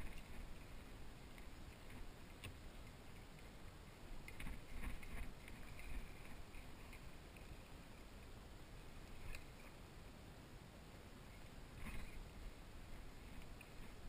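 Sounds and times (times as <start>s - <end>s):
water sloshing around paddle: 0.0s - 7.7s.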